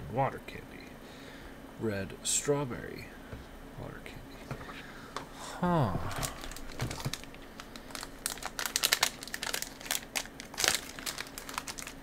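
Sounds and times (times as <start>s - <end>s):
plastic packaging crinkling: 6.1s - 12.0s.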